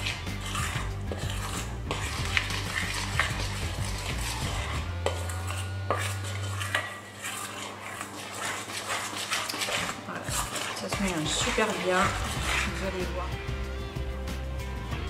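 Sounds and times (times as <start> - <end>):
spoon scraping metal bowl: 0.0 - 13.6.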